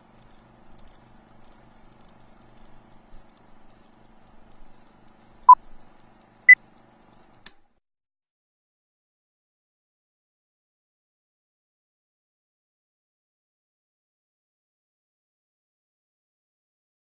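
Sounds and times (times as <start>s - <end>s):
click: 6.8s - 7.6s.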